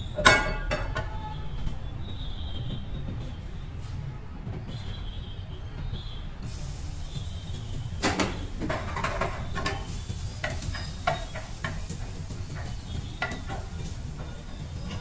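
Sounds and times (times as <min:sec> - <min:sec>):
vegetables sizzling in a frying pan: 0:06.4 - 0:15.0.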